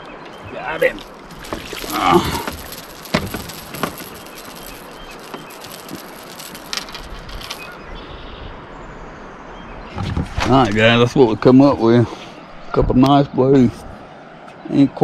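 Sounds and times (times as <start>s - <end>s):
knocks and clatters on boat: 0.2s - 7.7s, 9.9s - 11.0s.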